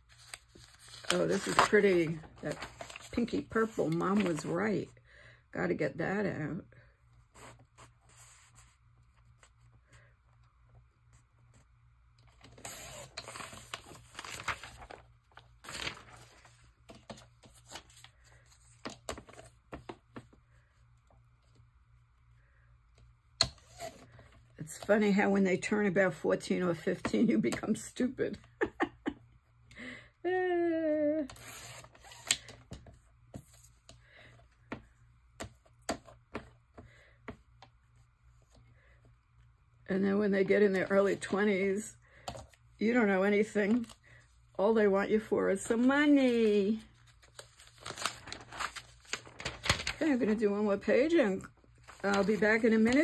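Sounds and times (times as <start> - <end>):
paper rustling: 0.0 - 4.7, 12.3 - 20.4, 45.6 - 50.4, 51.8 - 53.0
paper clicks and taps on plastic: 34.6 - 37.8.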